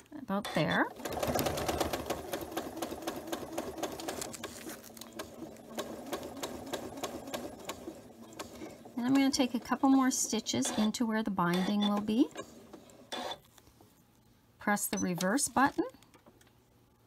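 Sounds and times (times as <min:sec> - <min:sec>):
sewing machine stitching: 0:00.5 - 0:13.4.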